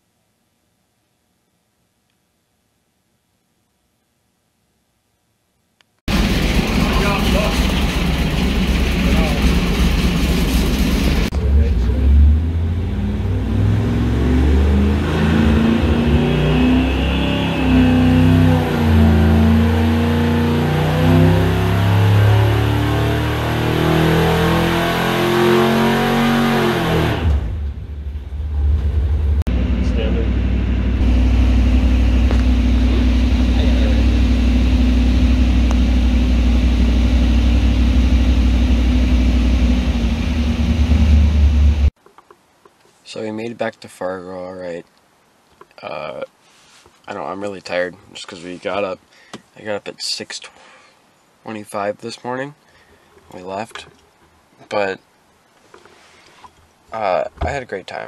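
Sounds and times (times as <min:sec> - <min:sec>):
race engine revving: 0:06.1 - 0:41.9.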